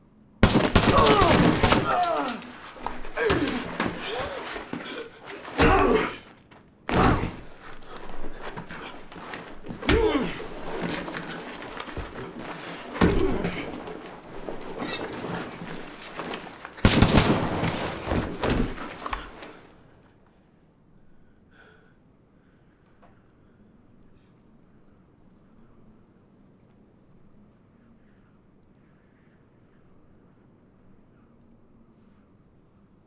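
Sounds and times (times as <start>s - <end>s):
gunshots: 0.4s - 2.7s, 16.8s - 18.4s
bullet impacts: 0.4s - 4.2s, 16.2s - 19.4s.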